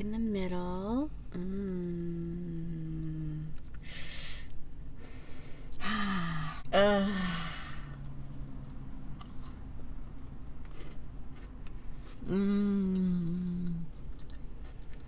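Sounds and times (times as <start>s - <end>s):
faint low humming while chewing: 0.0s - 15.0s
woman inhaling breathily: 3.8s - 6.6s
woman sighing: 5.8s - 7.9s.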